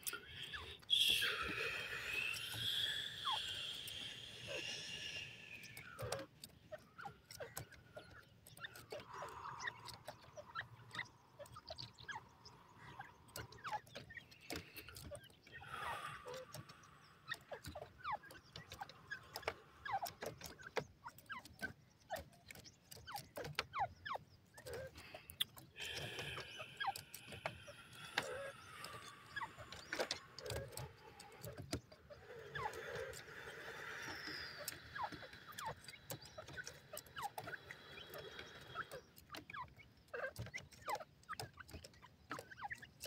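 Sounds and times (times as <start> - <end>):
faint clicks: 0.0 - 43.0
francolins chirping: 0.0 - 43.0.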